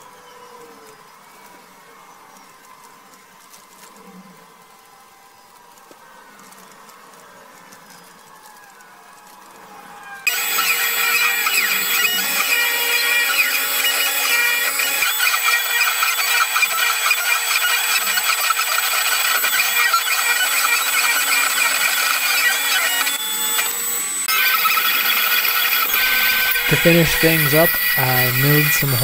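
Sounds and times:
constant machine whine: 10.3s - 29.0s
milling machine cutting metal: 10.3s - 29.0s.

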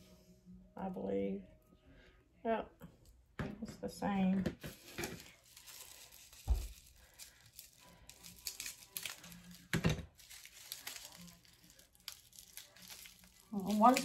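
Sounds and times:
plastic wrapping crinkling: 4.6s - 14.0s.

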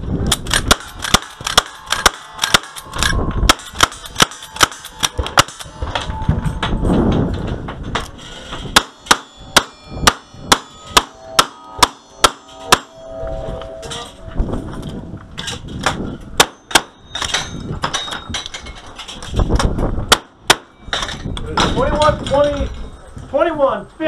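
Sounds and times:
rifle fire: 0.3s - 2.8s
steel targets clanging: 0.5s - 14.3s, 15.4s - 19.6s, 20.5s - 23.0s.

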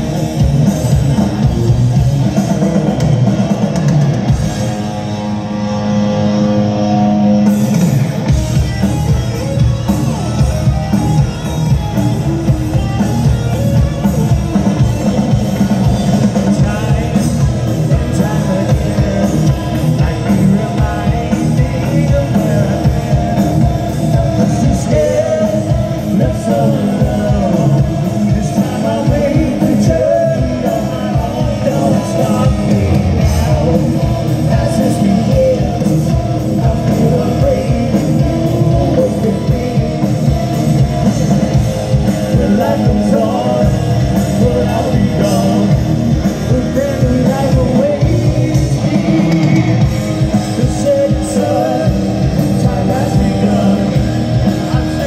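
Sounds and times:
bass guitar: 0.0s - 55.0s
drum kit: 0.0s - 55.0s
electric guitars: 0.0s - 55.0s
man singing: 14.8s - 41.4s, 42.2s - 55.0s.

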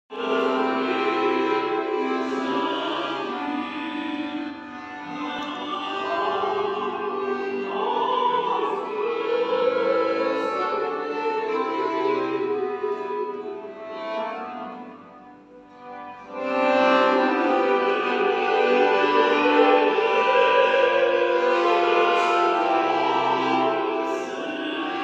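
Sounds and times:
woman singing operatic song: 0.1s - 11.5s, 17.3s - 25.0s.

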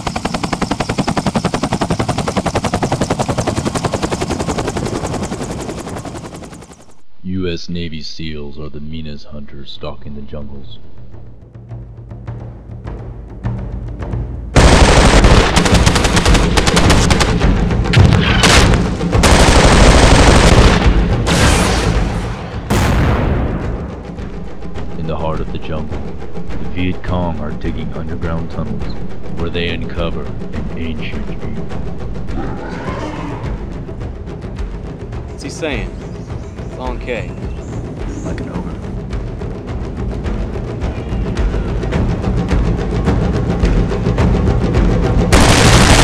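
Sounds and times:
helicopter rotor blades chopping: 0.0s - 7.0s, 14.6s - 21.3s, 23.8s - 46.0s
automatic gunfire: 14.6s - 17.4s, 18.4s - 21.6s.

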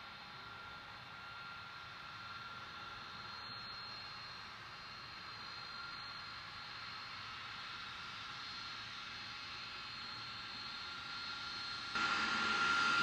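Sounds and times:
distant jet engines: 10.0s - 13.0s.

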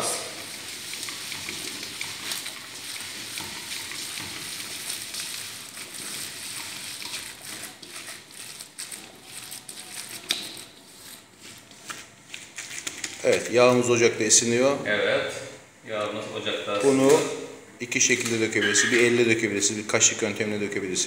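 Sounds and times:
wet batter squishing: 0.0s - 13.9s.

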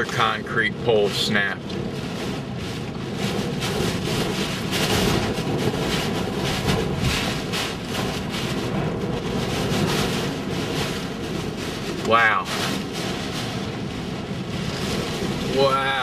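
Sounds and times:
rain lashing windshield: 0.0s - 16.0s
wind buffeting a car: 0.0s - 16.0s.

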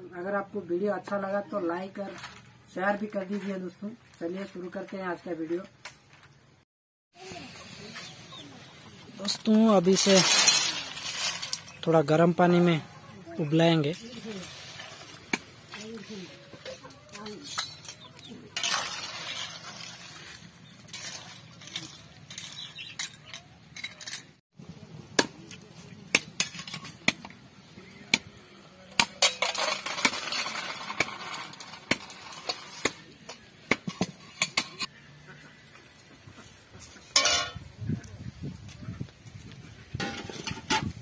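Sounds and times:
water boiling: 13.5s - 16.4s
metal spatula clinking and scraping: 14.0s - 24.4s, 26.3s - 27.1s, 29.0s - 34.9s, 37.1s - 37.6s.

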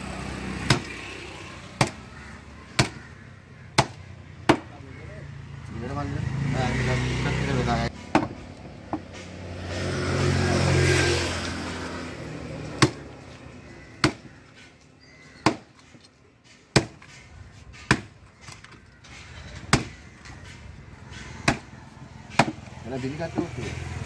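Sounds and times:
motor vehicle passing: 4.2s - 14.7s, 20.0s - 24.0s.

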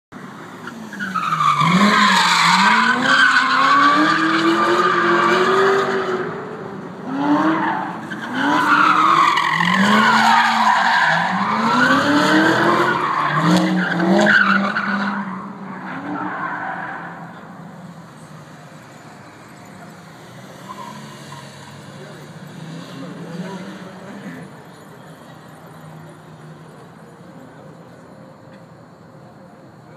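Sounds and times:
tires squealing: 0.2s - 28.1s
car engine revving: 0.8s - 17.6s, 19.8s - 24.6s.

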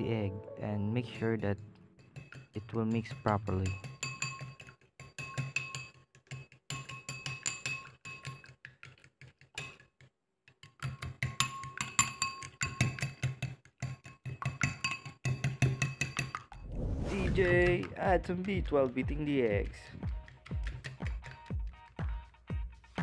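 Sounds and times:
fork clinking in glass bowl: 1.9s - 8.6s, 11.3s - 13.2s, 13.9s - 16.5s.

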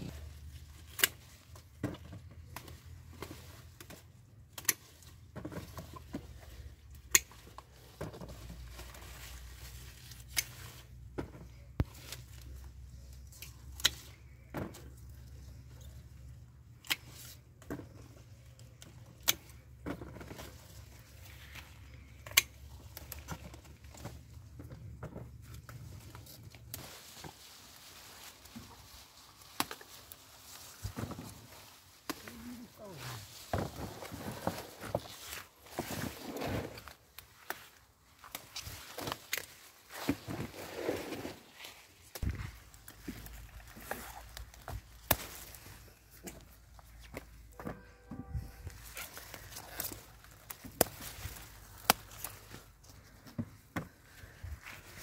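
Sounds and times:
rustle of plants: 0.0s - 19.6s, 20.2s - 24.6s, 25.4s - 47.6s, 48.4s - 55.0s
pruning shears snipping stalks: 0.7s - 1.5s, 2.5s - 5.1s, 7.0s - 7.6s, 10.1s - 10.8s, 13.2s - 14.2s, 16.8s - 17.4s, 22.1s - 23.5s, 29.4s - 30.8s, 36.9s - 39.9s, 42.1s - 47.2s, 48.8s - 52.6s
footsteps through grass: 26.4s - 47.2s.

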